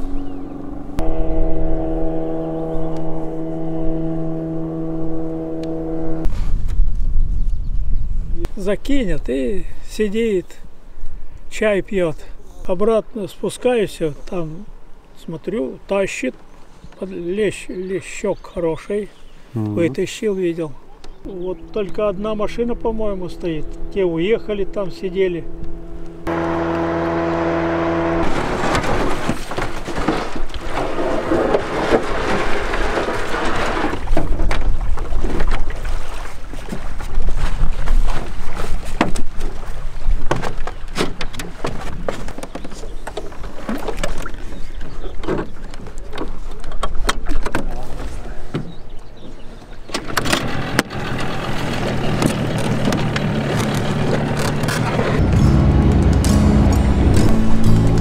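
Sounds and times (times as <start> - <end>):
engine humming: 0.0 - 6.3, 21.3 - 29.4, 50.6 - 58.0
loud rushing noise: 55.0 - 58.0.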